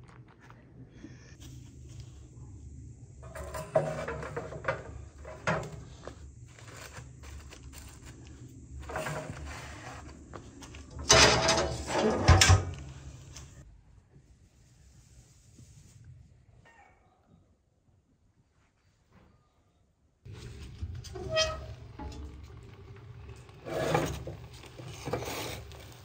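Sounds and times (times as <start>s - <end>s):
kitchen rattling and scraping: 3.2s - 13.6s, 20.3s - 26.0s.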